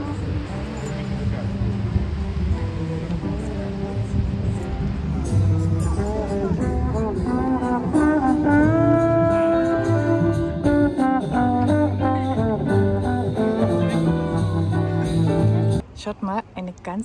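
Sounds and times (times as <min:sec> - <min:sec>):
backing track bass line: 0:00.0 - 0:15.8
jazzy trombone melody: 0:05.3 - 0:15.8.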